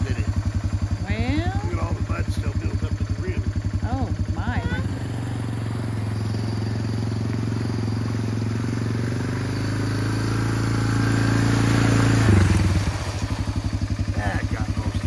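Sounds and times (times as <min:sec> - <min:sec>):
atv engine running: 0:00.0 - 0:15.0
water splashing around tyres: 0:05.0 - 0:15.0.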